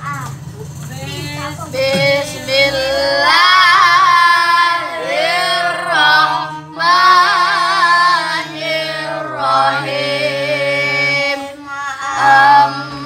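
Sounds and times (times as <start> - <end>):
children chanting recitation: 1.8 - 13.0.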